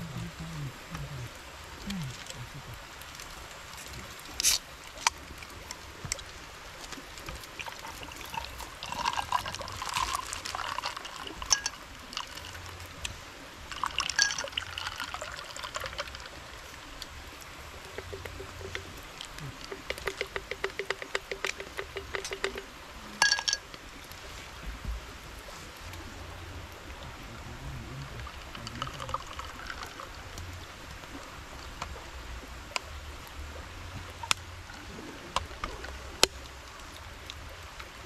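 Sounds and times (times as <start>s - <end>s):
steady hiss: 0.0s - 38.0s
water pouring and trickling: 0.0s - 38.0s
quick run of ticks: 18.0s - 22.7s
clicks and knocks: 18.0s - 23.8s.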